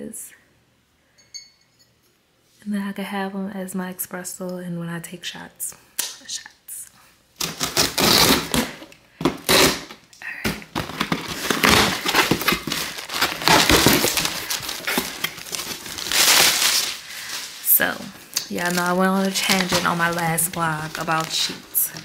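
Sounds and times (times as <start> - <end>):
packaging crinkling: 7.4 - 22.0.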